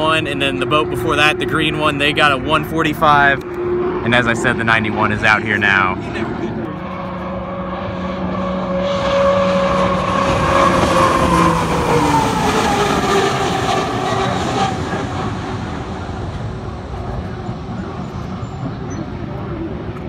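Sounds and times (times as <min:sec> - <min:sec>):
turbine boat whine: 0:00.0 - 0:20.0.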